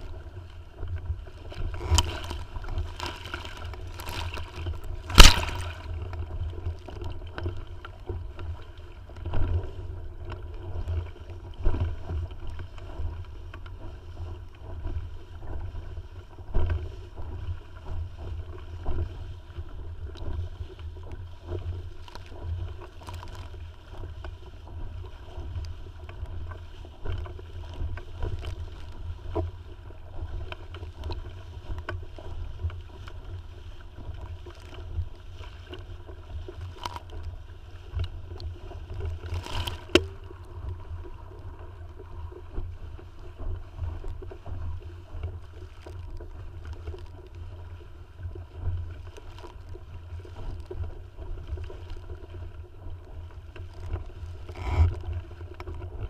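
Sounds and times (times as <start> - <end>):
steady low rumble: 0.0 - 56.0
water slapping against hull: 0.0 - 56.0.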